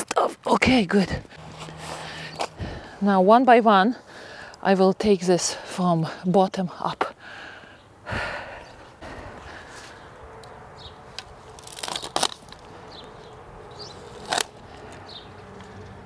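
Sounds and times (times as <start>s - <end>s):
branches rustling: 1.2s - 3.0s, 8.8s - 15.9s
branch snapping: 11.2s - 12.7s.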